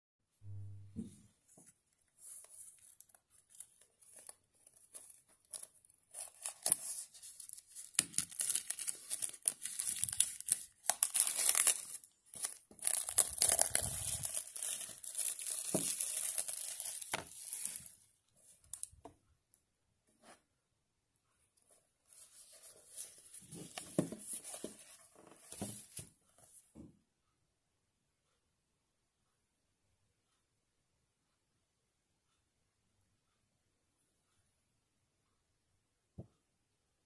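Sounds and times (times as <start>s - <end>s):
plastic shrink-wrap tearing: 5.5s - 18.0s.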